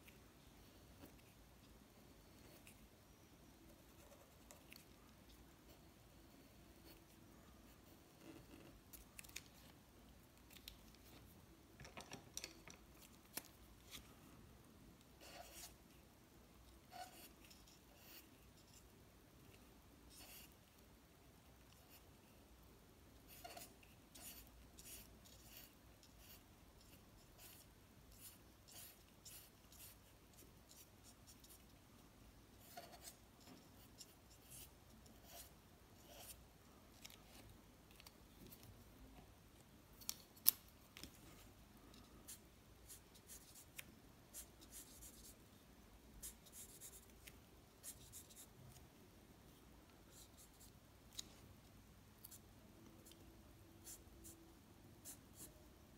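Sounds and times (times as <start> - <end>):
markers scratching on paper: 15.2 - 15.8, 16.8 - 18.9, 20.1 - 20.6, 23.2 - 31.8, 32.6 - 36.4, 42.2 - 45.4, 46.2 - 48.8.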